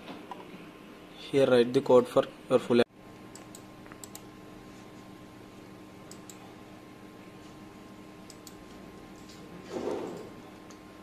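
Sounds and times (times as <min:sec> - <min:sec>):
electrical hum: 0:00.0 - 0:11.0
faint computer clicks: 0:03.2 - 0:04.3, 0:06.1 - 0:06.4, 0:08.2 - 0:08.6.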